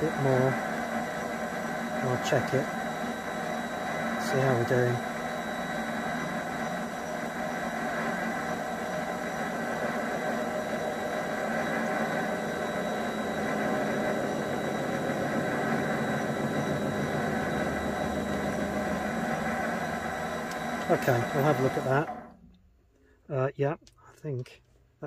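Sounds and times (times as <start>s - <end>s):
lathe motor and gear hum: 0.0s - 22.5s.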